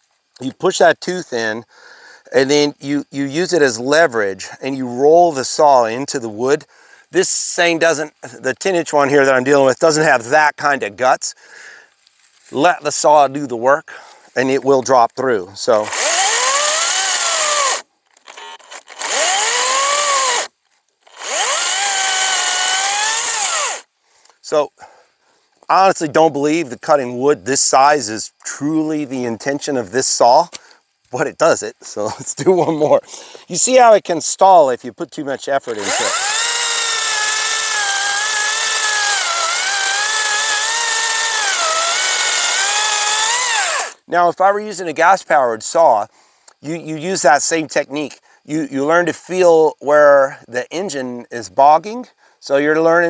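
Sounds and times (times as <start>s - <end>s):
cordless chainsaw cutting log: 15.7s - 23.9s, 35.6s - 44.0s.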